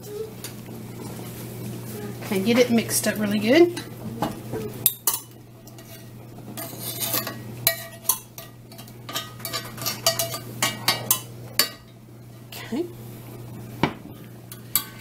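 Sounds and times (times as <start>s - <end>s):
metal spoon scraping a skillet: 4.8s - 11.8s, 14.5s - 15.0s.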